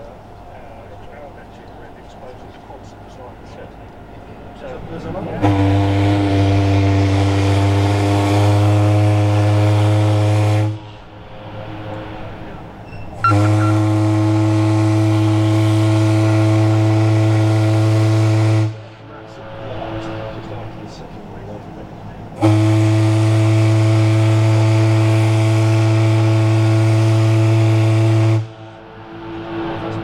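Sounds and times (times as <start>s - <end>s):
steam whistle blasts: 13.2s - 18.7s, 22.4s - 28.5s.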